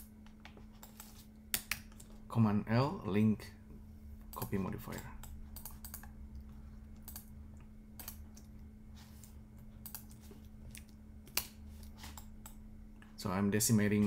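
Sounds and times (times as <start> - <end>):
low electrical hum: 0.0 - 14.0
computer keyboard tapping: 4.3 - 6.1, 9.8 - 10.2.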